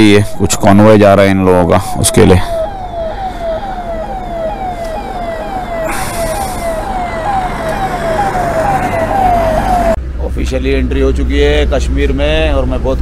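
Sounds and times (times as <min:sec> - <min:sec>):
siren wailing: 0:00.0 - 0:10.0
traffic noise rush: 0:00.0 - 0:13.0.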